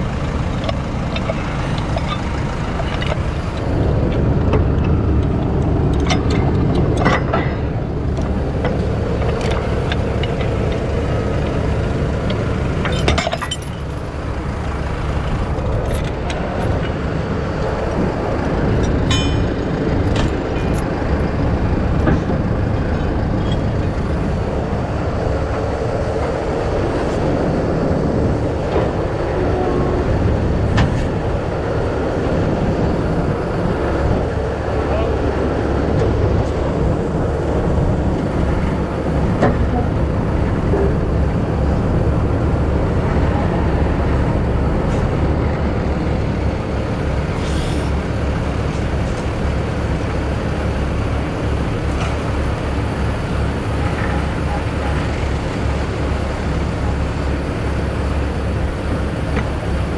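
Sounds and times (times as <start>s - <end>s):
diesel truck engine running: 0.0s - 59.9s
metal chains clinking: 12.9s - 13.9s.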